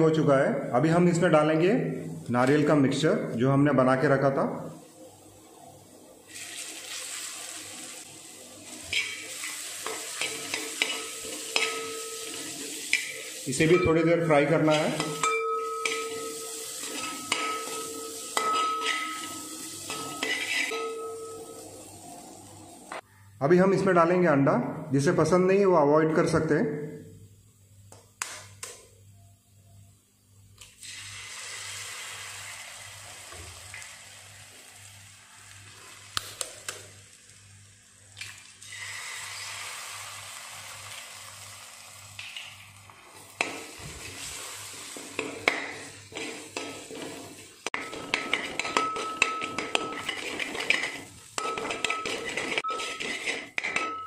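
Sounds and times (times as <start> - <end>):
eggs sizzling in hot oil: 4.8 - 23.0, 30.6 - 53.9
spoon scraping a metal pot: 8.9 - 9.2, 9.8 - 13.2, 14.7 - 21.0, 45.2 - 54.0.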